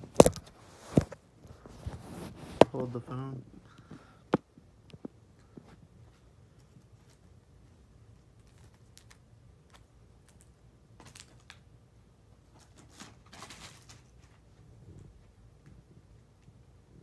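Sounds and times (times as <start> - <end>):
card packs clicking and crinkling: 12.6 - 14.2.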